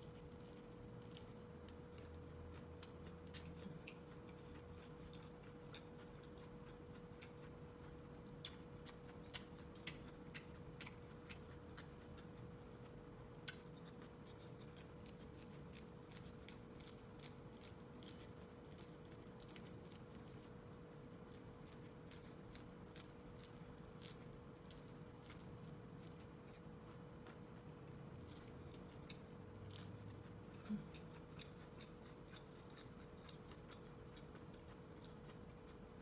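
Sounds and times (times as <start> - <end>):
faint hum: 0.0 - 36.0
teeth biting corn clicks: 1.0 - 12.4.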